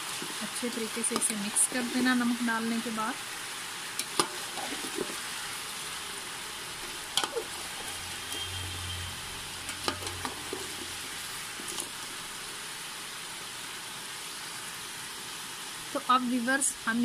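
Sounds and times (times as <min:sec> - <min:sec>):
chicken sizzling in hot oil: 0:00.0 - 0:17.0
metal spoon scraping pot: 0:09.6 - 0:11.9.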